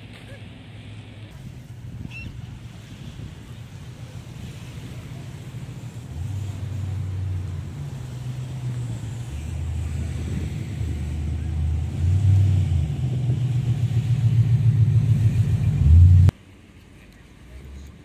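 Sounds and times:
low rumble: 3.1 - 16.4.

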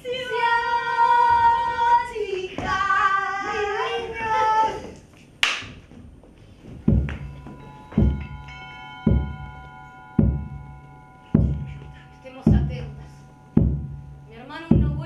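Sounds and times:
deep drum thuds: 6.8 - 7.4, 8.0 - 8.5, 9.1 - 9.6, 10.2 - 10.8, 11.4 - 11.8, 12.5 - 15.0
bell-like tones ringing: 6.8 - 15.0.

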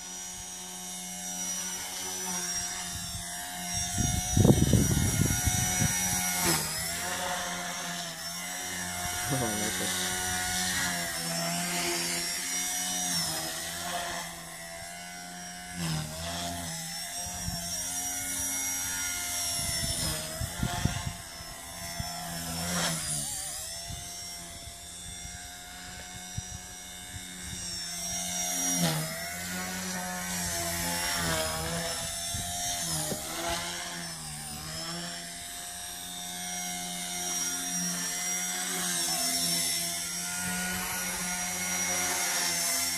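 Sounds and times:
rc helicopter motor whine: 0.0 - 42.9.

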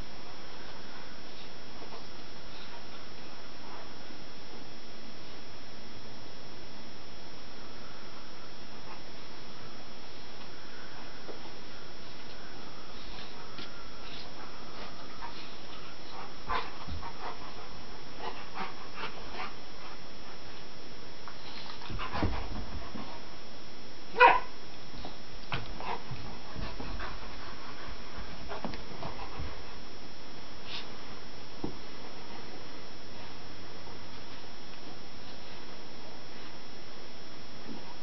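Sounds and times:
dog yipping: 24.2 - 24.5.

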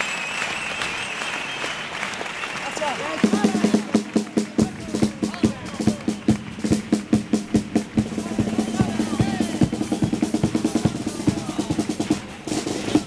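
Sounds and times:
bass drum and snare drum beating: 3.2 - 13.0.

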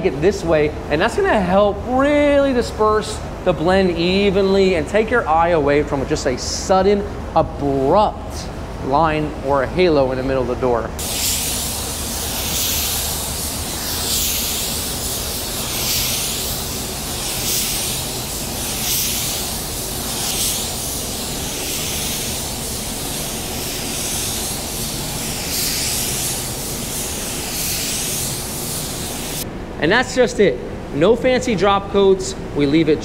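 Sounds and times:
paint spray gun hissing: 11.0 - 29.4.

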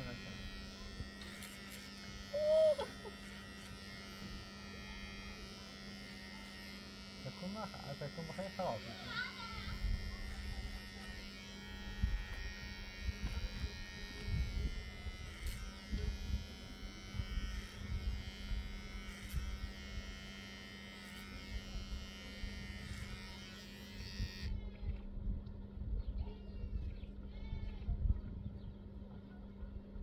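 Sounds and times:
electric buzz: 0.0 - 24.6
low hum: 9.4 - 30.0.

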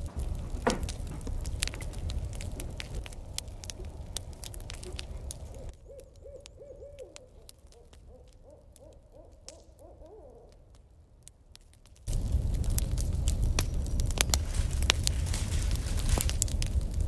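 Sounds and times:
noisy crackling: 0.0 - 9.9, 10.7 - 17.0
faint scattered clicks: 0.1 - 15.4
owl hooting: 4.8 - 10.6.

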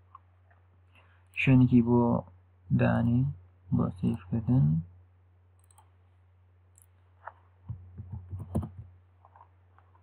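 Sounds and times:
low electrical hum: 0.0 - 10.0
keyboard typing: 5.6 - 5.9, 7.7 - 9.4
mouse clicks: 5.6 - 5.9.

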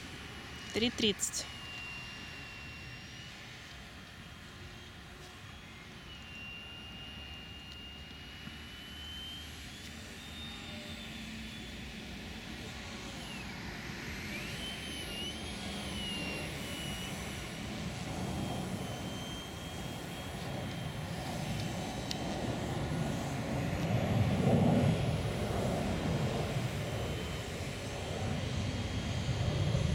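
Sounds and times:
model plane motor whine: 0.0 - 29.9.

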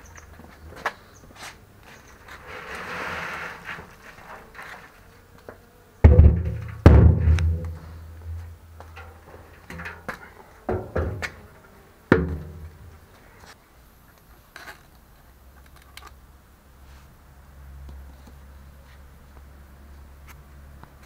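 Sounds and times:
hollow knocks on steel drum: 6.1 - 8.4.

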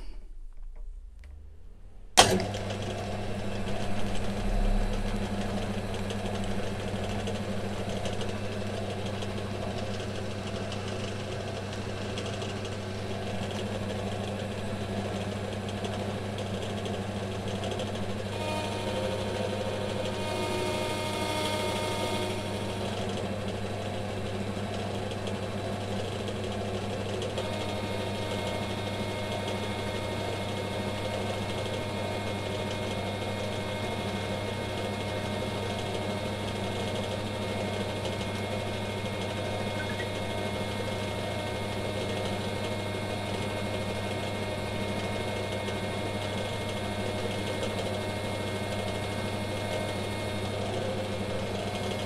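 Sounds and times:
metal lathe running: 18.0 - 24.8.

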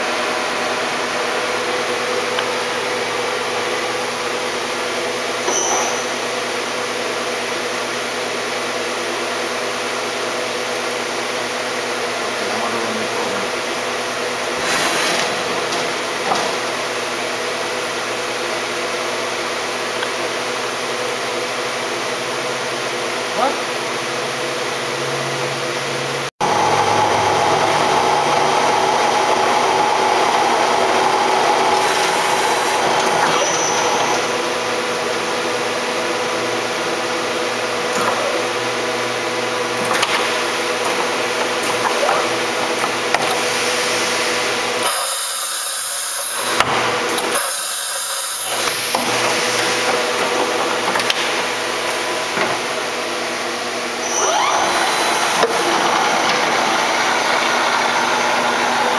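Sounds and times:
machine whir and hiss: 0.0 - 22.4, 26.0 - 58.9
spindle drive whine: 26.4 - 34.7.

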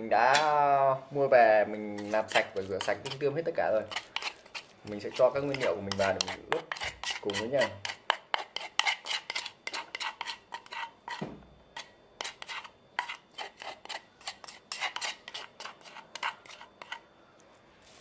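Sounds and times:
spoon scraping and tapping bowl: 2.0 - 3.2, 3.9 - 17.0.

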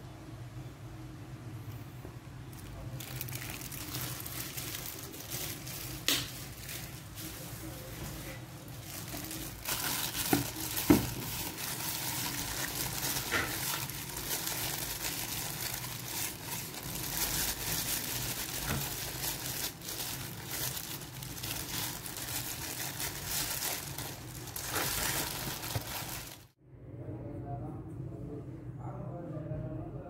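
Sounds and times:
plastic glove crinkling: 2.5 - 26.6.

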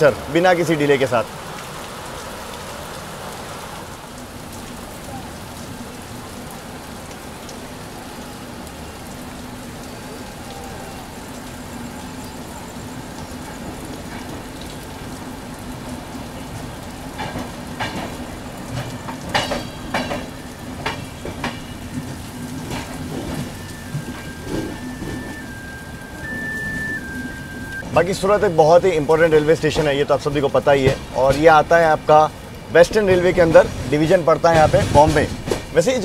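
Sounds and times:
steady rain: 0.0 - 36.0
sharp clanks: 18.8 - 21.7.

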